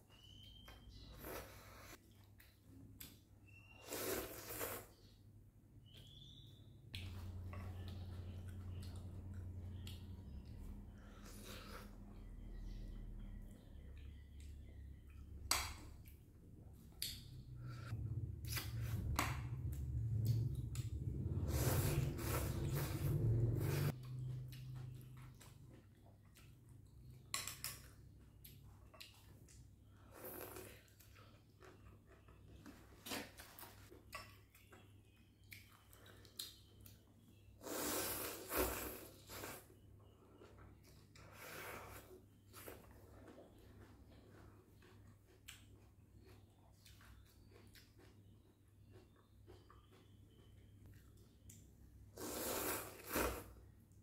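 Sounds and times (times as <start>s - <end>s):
slurping noodles: 3.8s - 5.0s, 21.4s - 23.9s, 37.6s - 39.8s, 52.2s - 53.5s
chewing and mouth noises: 16.0s - 52.4s.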